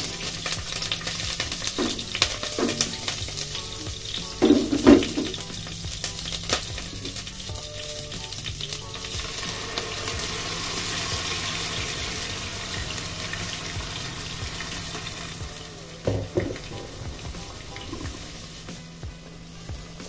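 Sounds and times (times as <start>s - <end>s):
oil sizzling in a pot: 0.0s - 20.0s
jug knocking down: 4.4s - 5.4s, 16.0s - 18.2s.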